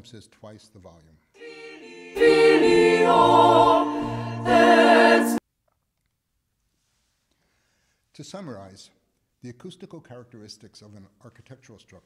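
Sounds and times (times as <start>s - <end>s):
chorus singing in reverberant church: 1.4s - 5.4s.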